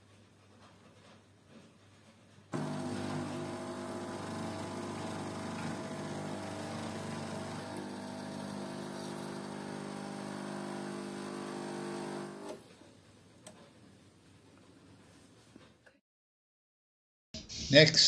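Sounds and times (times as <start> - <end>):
espresso machine pump humming: 2.6 - 12.6.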